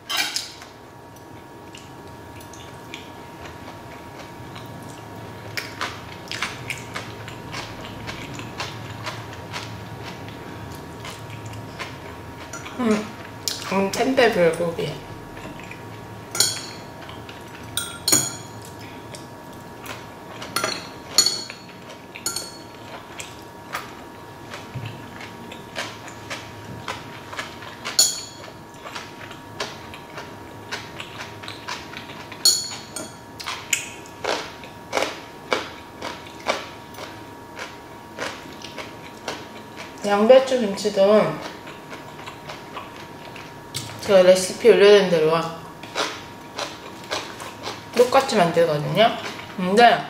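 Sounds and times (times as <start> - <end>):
chewing food: 1.1 - 13.7, 21.7 - 32.4, 33.4 - 40.1, 41.3 - 44.0, 45.8 - 48.1.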